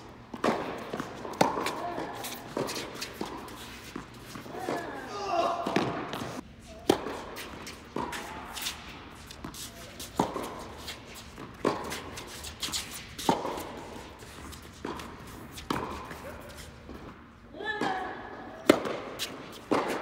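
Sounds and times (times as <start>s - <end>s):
racket hitting tennis ball: 0.0s - 17.2s, 18.6s - 20.0s
ball bouncing on court: 0.3s - 8.8s
shoes shuffling: 0.8s - 17.2s.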